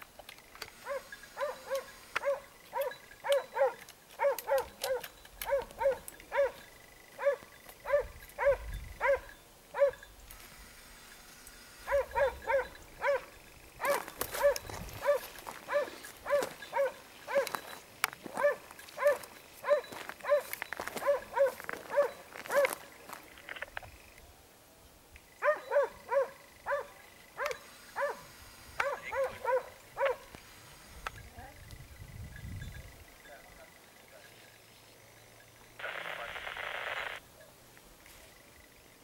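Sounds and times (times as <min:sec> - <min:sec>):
dog barking: 0:00.8 - 0:06.6, 0:07.2 - 0:10.0, 0:11.9 - 0:17.6, 0:18.3 - 0:22.8, 0:25.4 - 0:30.3.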